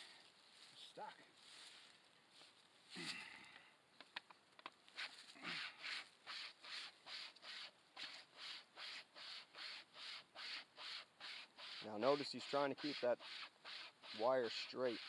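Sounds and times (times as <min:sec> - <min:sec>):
wire saw rasping through wood: 0:05.5 - 0:15.0.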